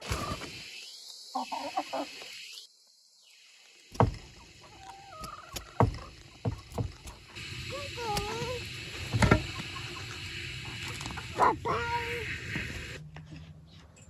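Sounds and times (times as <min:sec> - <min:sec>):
hens clucking: 0:01.3 - 0:02.4, 0:04.0 - 0:13.4
sharp knocks: 0:03.9 - 0:04.3, 0:05.8 - 0:07.2.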